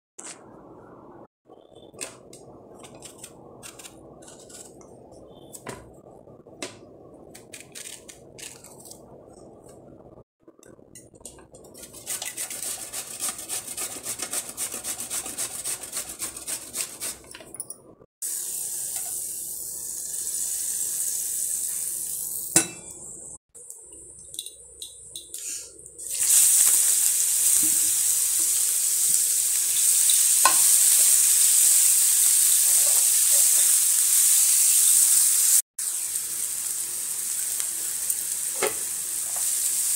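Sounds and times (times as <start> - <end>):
spatula stirring: 11.2 - 17.5
vegetable rasping on a grater: 11.8 - 17.3
food sizzling in a frying pan: 18.2 - 22.7, 26.0 - 39.9.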